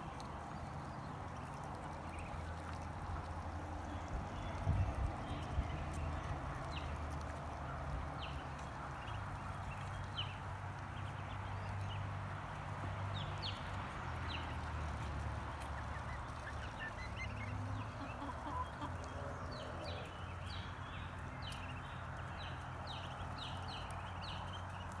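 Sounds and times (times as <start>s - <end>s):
chickens clucking: 14.5s - 20.4s.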